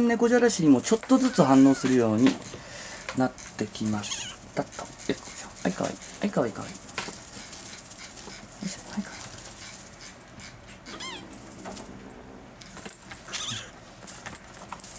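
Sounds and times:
paws rustling on cat bed: 0.8 - 11.9
kitten mewing: 10.9 - 11.3, 13.3 - 13.7.

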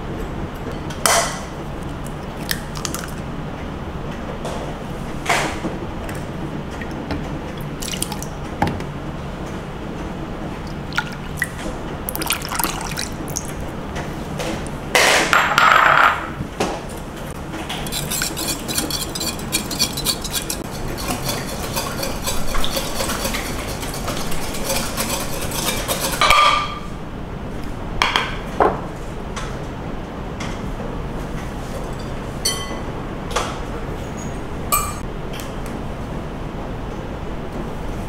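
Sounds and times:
utensils knocking: 17.6 - 26.8
whisk rattling against glass: 17.7 - 26.7.

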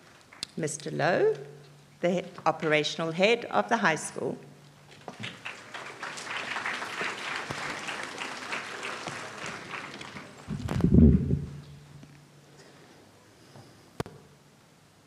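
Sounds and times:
audience applauding: 5.0 - 10.9
loud low thumps: 10.5 - 11.8.

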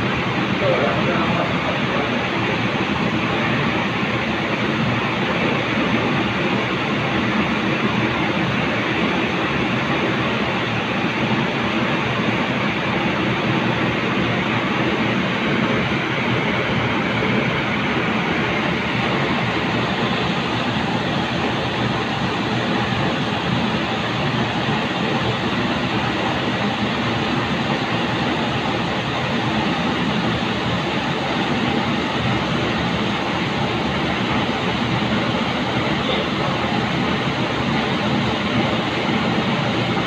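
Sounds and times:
factory machinery humming: 0.0 - 40.0.

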